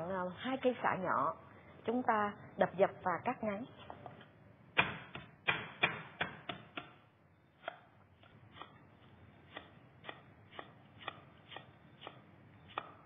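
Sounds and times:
knife chopping on wooden board: 0:04.8 - 0:07.0, 0:08.5 - 0:08.8, 0:09.4 - 0:13.0.

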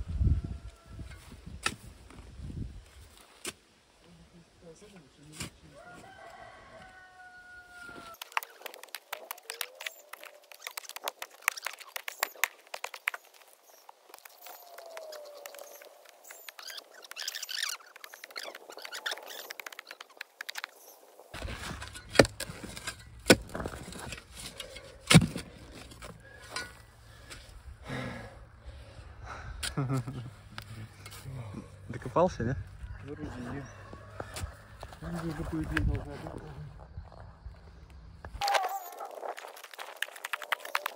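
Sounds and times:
shovel digging and scraping soil: 0:01.1 - 0:03.7, 0:04.9 - 0:05.8, 0:07.9 - 0:27.6, 0:29.6 - 0:31.5.

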